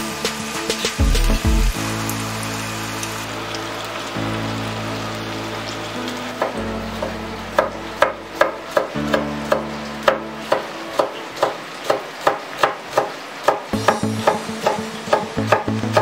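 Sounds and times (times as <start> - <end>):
background music: 0.0 - 12.4, 13.7 - 16.0.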